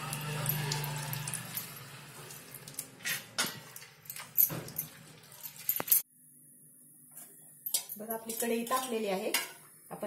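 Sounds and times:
water splashing on steel plate: 0.0 - 3.9
bangles clinking: 3.6 - 6.1.

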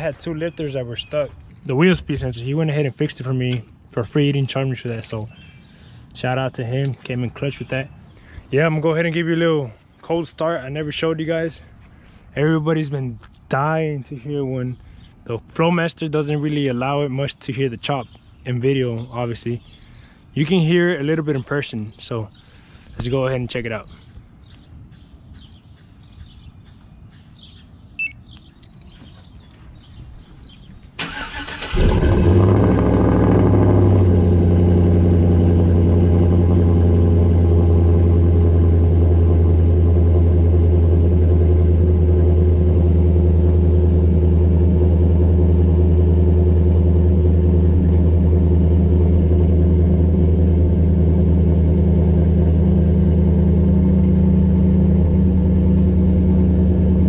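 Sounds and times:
starter cranking: 31.0 - 32.6
car engine idling: 31.0 - 57.0.

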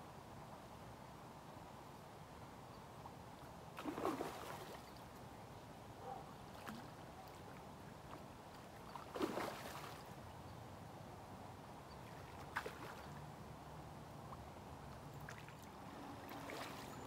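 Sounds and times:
fish splashing in water: 3.8 - 4.8, 9.0 - 10.1, 16.2 - 17.0.

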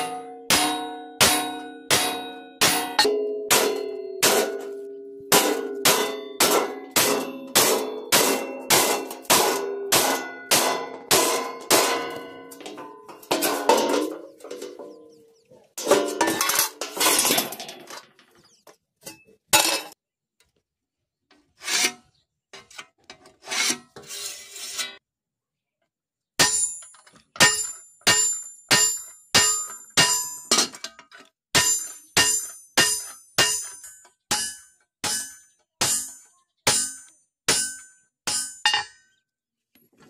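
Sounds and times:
hammer striking chisel on metal: 0.0 - 12.6, 26.4 - 30.8, 31.6 - 39.0
iron sheets clattering and scraping: 5.4 - 15.1, 15.8 - 18.4.

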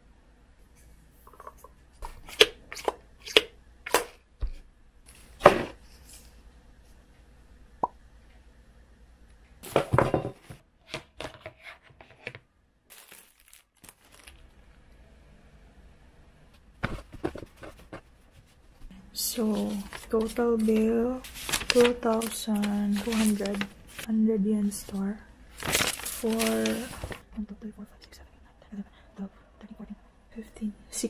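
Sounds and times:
plastic packaging crinkling: 12.9 - 14.8, 19.3 - 24.1, 24.8 - 27.2.

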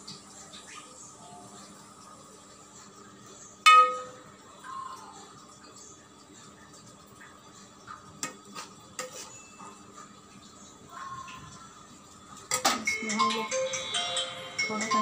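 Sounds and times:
metal spoon scraping steel pot: 8.6 - 9.4.

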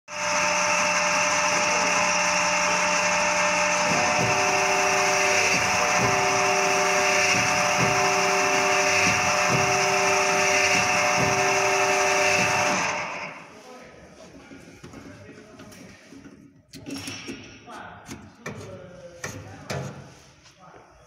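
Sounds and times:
honing machine whine and hiss: 0.1 - 13.5.

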